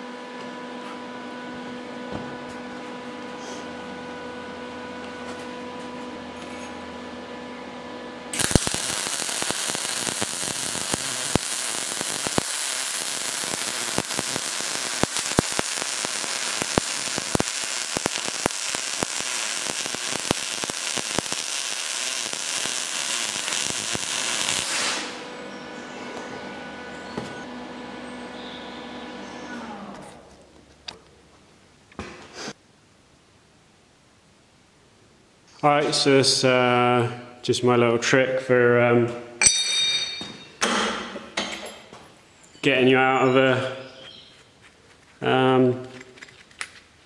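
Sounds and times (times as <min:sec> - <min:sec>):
electrical hum: 0:00.0 - 0:31.9
welding arc crackling: 0:08.3 - 0:25.4.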